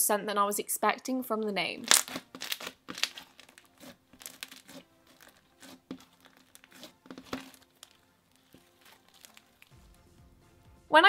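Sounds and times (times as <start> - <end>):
slime clicking and crackling: 1.8 - 9.8.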